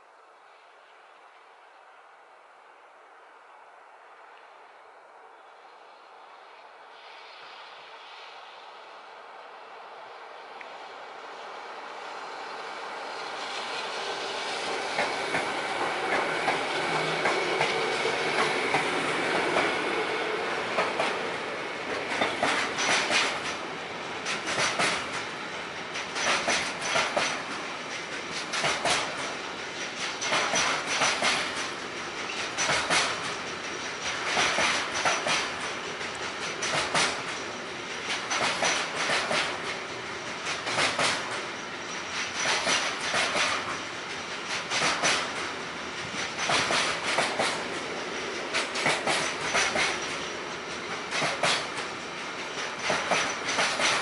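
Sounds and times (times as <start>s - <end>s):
freight train passing: 0.0s - 54.0s
wheels clicking over track: 14.6s - 54.0s.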